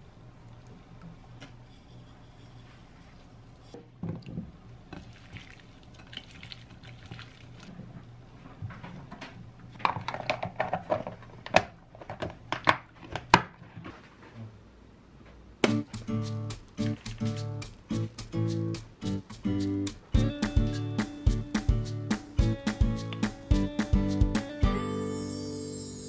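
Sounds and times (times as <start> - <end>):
hands mixing wet vegetables: 4.9 - 8.3, 15.7 - 24.2.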